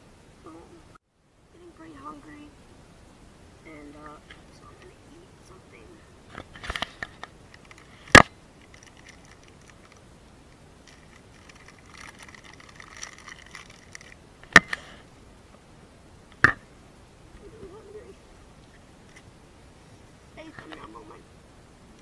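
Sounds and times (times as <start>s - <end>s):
plastic wrapper crinkling: 7.6s - 10.0s, 10.8s - 14.2s.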